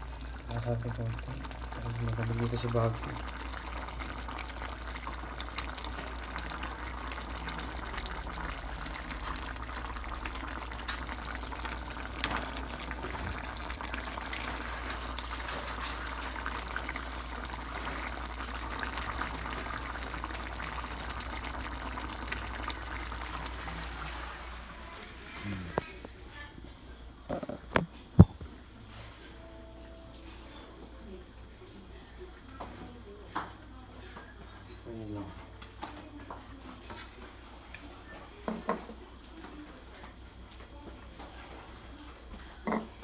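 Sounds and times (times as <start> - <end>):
stew bubbling in a frying pan: 0.0 - 26.2, 36.8 - 43.0.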